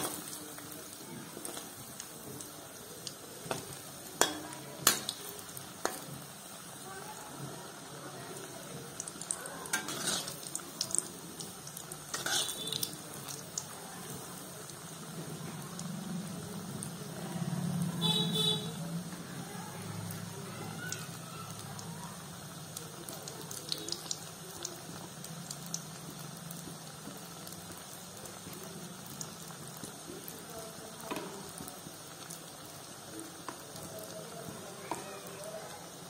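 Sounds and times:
oil sizzling and crackling: 0:00.0 - 0:36.0
metal spoon clicking on pan: 0:04.2 - 0:05.2.

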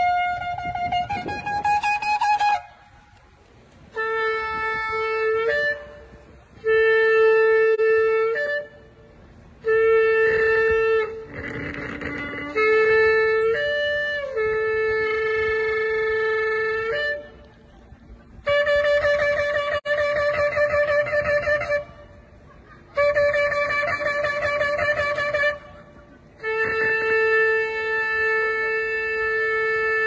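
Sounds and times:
shofar blasts: 0:09.6 - 0:17.2.

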